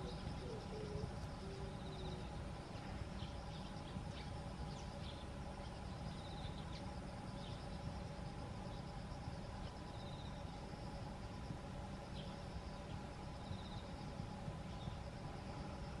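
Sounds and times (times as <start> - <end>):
faint hum: 0.0 - 16.0
pulsing insect trill: 0.0 - 16.0.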